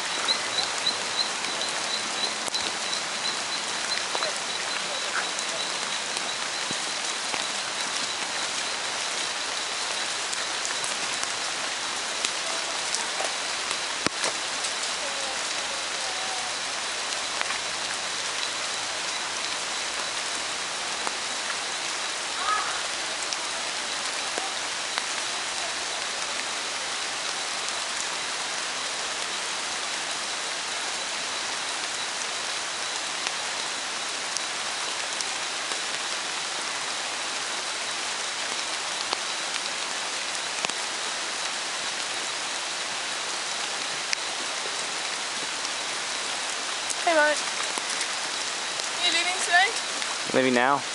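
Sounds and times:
water drips: 0.0s - 26.5s, 43.6s - 50.4s
rain falling on foliage: 0.0s - 50.9s.

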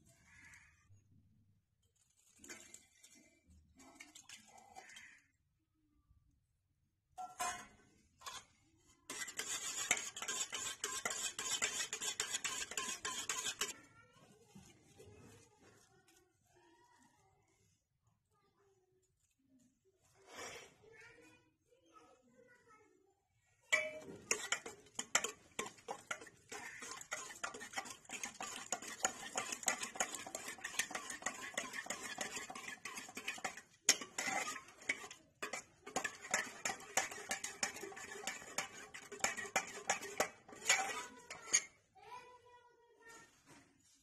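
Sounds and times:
ladle stirring in metal pot: 1.9s - 5.2s, 7.2s - 13.8s, 23.7s - 41.8s.

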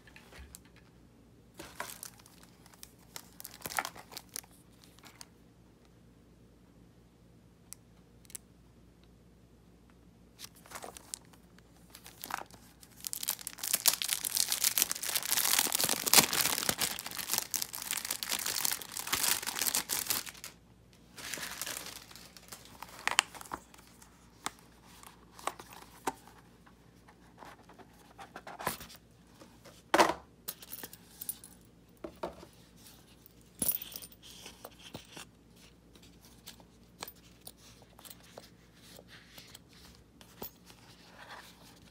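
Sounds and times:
plastic packaging tearing and crinkling: 1.8s - 4.5s, 10.4s - 20.6s, 21.2s - 23.7s.

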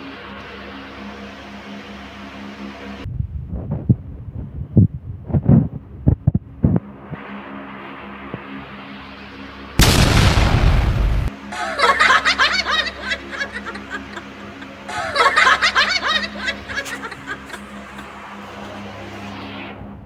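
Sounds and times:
steady hum: 0.0s - 20.0s
loud rushing noise: 9.8s - 11.4s
stifled snickering laughter: 11.5s - 18.9s.

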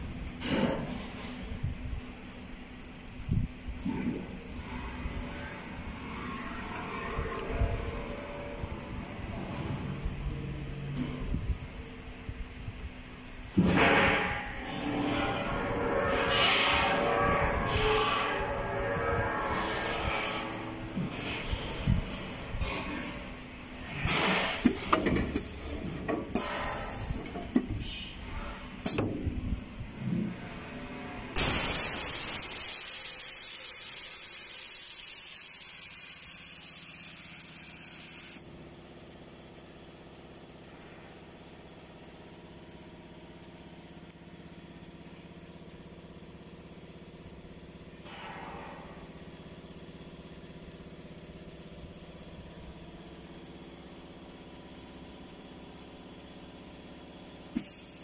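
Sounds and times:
low machine hum: 0.0s - 58.0s
compressed air hissing: 31.4s - 38.4s, 57.6s - 58.0s.

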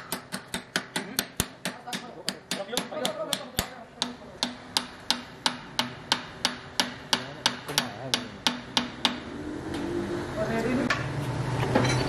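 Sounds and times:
hammer knocking on metal: 0.0s - 9.3s.

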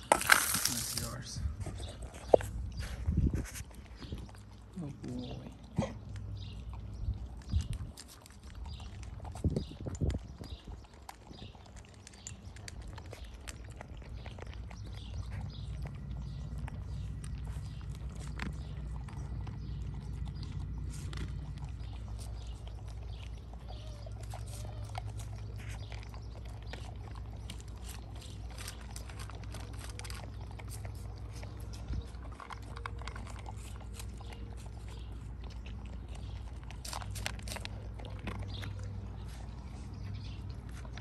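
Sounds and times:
dogs crunching and chewing: 0.0s - 41.0s
low steady rumble: 0.0s - 41.0s.

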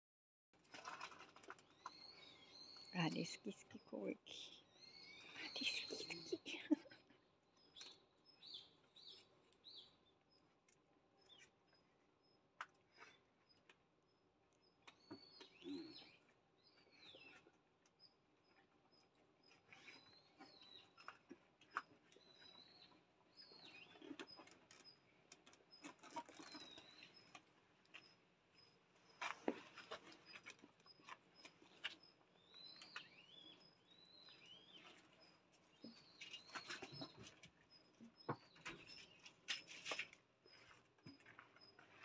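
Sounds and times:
faint bird chirps: 1.7s - 10.1s, 14.8s - 25.0s, 25.7s - 42.0s.

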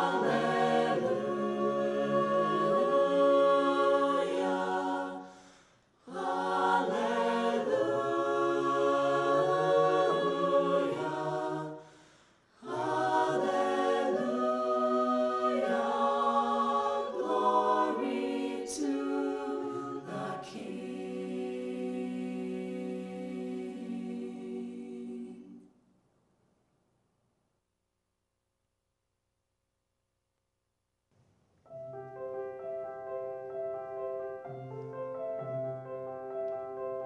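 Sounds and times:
choir singing a cappella: 0.0s - 25.7s.

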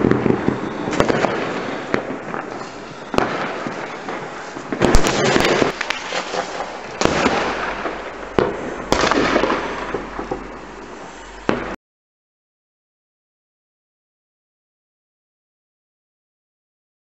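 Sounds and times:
fireworks bangs and crackling: 0.0s - 11.8s.

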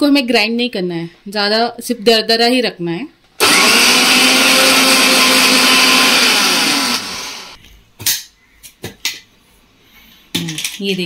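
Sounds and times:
mixer grinder grinding nuts: 3.4s - 7.6s.

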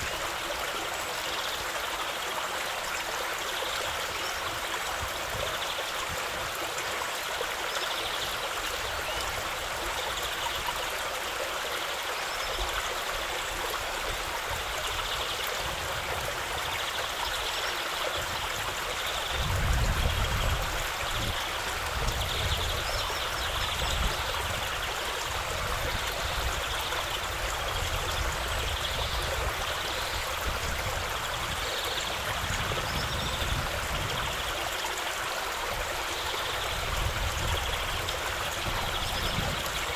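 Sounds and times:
stream running over stones: 0.0s - 39.9s.

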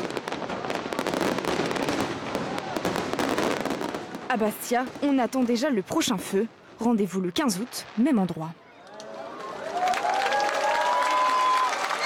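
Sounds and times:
fireworks crackling: 0.0s - 12.0s
crowd cheering and applauding: 8.7s - 12.0s.

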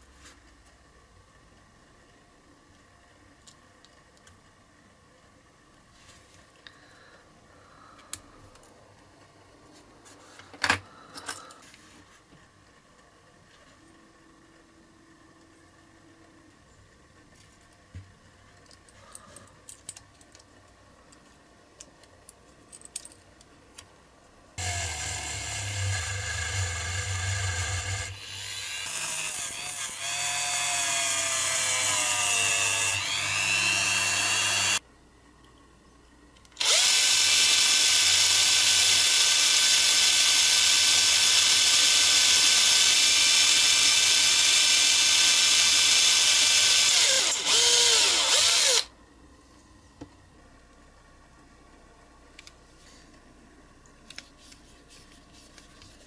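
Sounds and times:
cordless drill boring plastic: 24.6s - 34.8s, 36.6s - 48.9s.

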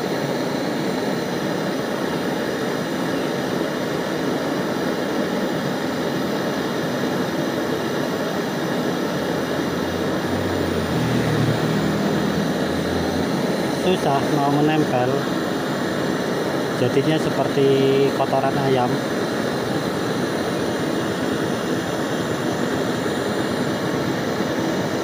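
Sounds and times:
torch flame roaring: 0.0s - 25.0s
low hum: 8.5s - 16.1s.

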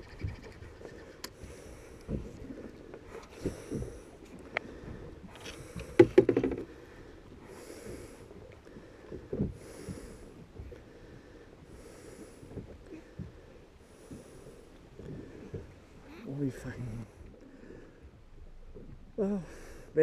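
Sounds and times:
person breathing slowly: 1.3s - 2.4s, 3.0s - 15.7s, 17.3s - 18.2s
clatter of knocks: 6.0s - 6.7s.

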